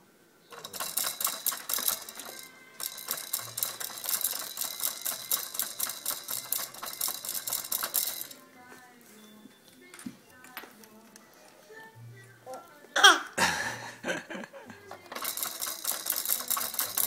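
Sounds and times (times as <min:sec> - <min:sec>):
baby toy rattling: 0:00.5 - 0:08.5, 0:14.8 - 0:17.0.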